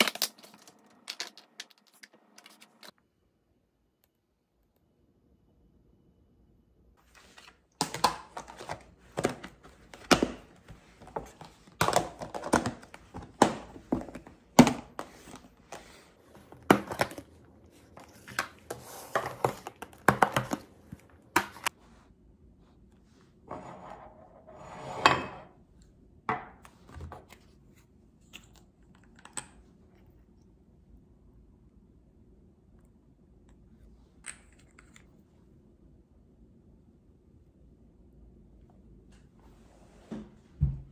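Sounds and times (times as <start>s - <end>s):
plastic containers clicking and knocking: 11.1s - 15.5s.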